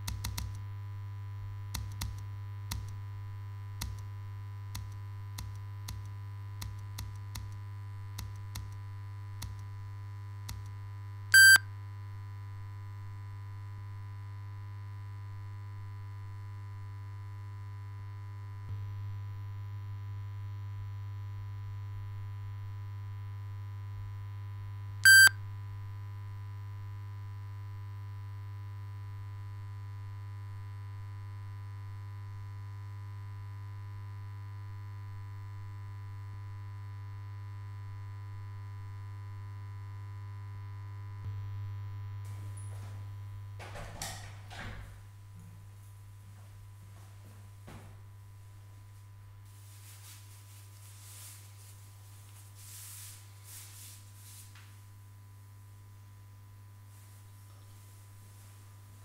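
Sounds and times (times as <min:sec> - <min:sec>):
low electrical hum: 0:00.0 - 0:59.0
short loud electronic beep: 0:11.4 - 0:11.6, 0:25.1 - 0:25.3.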